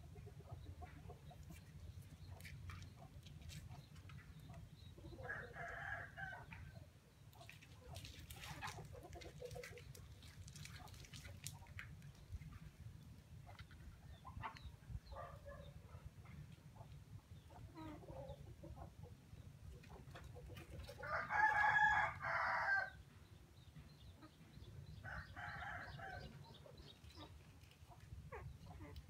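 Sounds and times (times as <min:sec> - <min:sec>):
faint scattered bird calls: 0:00.0 - 0:29.0
rooster crowing: 0:21.0 - 0:22.9.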